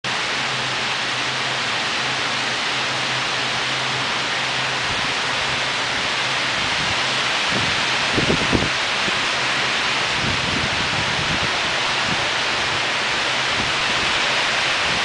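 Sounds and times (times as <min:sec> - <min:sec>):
heavy rain pouring: 0:00.1 - 0:15.0
strong wind: 0:00.1 - 0:15.0
low gusty rumbles: 0:03.0 - 0:15.0.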